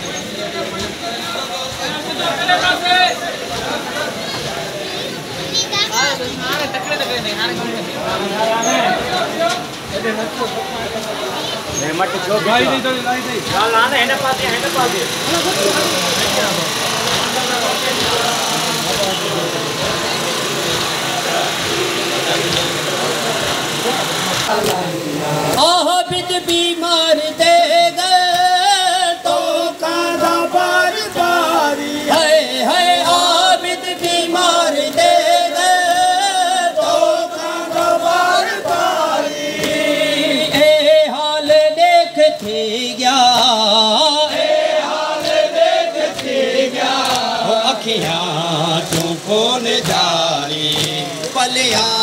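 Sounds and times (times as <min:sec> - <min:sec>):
men chanting a lament: 0:06.3 - 0:52.0
rhythmic chest-beating slaps: 0:12.0 - 0:52.0.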